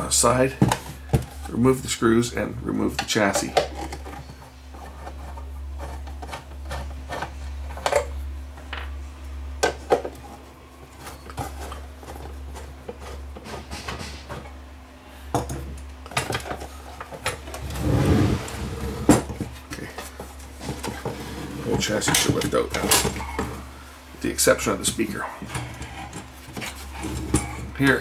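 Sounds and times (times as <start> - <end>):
metal cabinet scraping: 17.4 - 23.7, 25.4 - 28.0.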